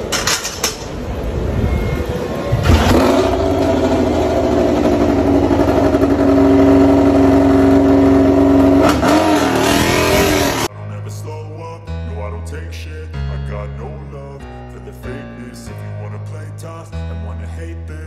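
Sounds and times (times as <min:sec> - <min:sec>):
motorcycle engine idling: 0:02.8 - 0:08.8.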